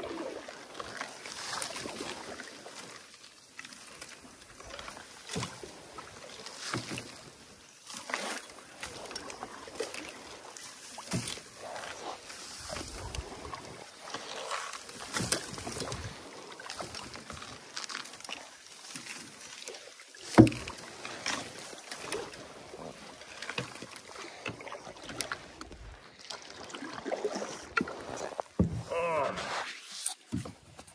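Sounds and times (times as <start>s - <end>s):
rustling rice stalks: 10.8s - 24.4s.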